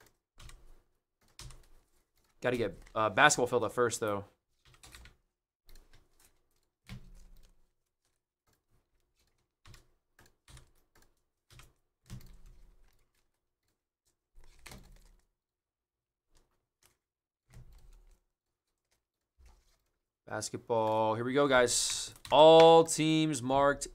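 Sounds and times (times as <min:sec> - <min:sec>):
typing on keyboard: 0:00.0 - 0:04.0, 0:04.6 - 0:08.2, 0:09.0 - 0:13.3, 0:16.4 - 0:18.2.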